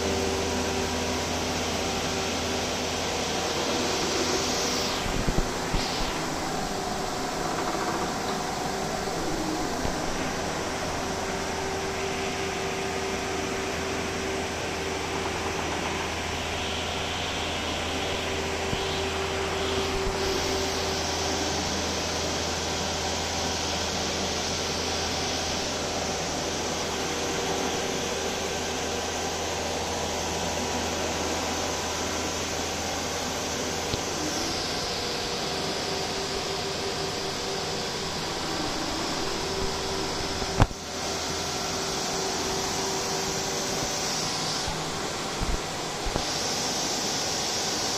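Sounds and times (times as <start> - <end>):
extrusion machinery whirring: 0.0 - 47.9
low hum: 0.1 - 14.2
hiss: 0.8 - 14.4, 15.5 - 47.9
steady tone: 1.8 - 14.4.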